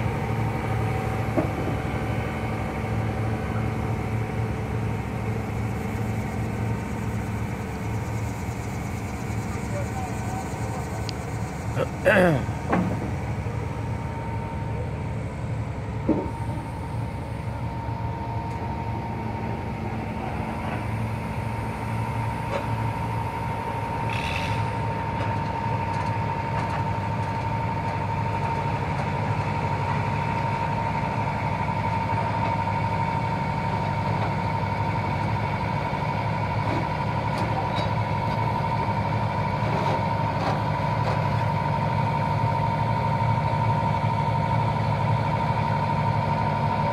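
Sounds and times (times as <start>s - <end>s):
excavator diesel engine running: 0.0s - 46.9s.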